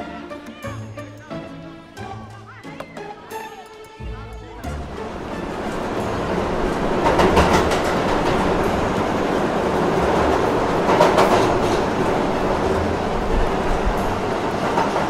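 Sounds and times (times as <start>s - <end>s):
train wheels rolling on track: 4.7s - 15.0s.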